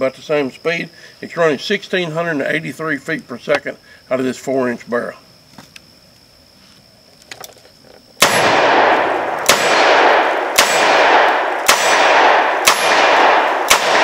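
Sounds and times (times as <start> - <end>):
revolver shots echoing: 8.2 - 14.0.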